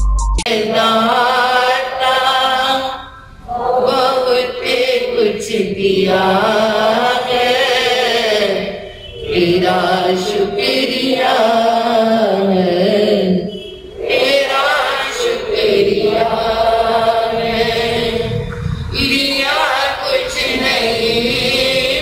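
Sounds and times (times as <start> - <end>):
woman chanting a prayer: 0.6 - 13.5.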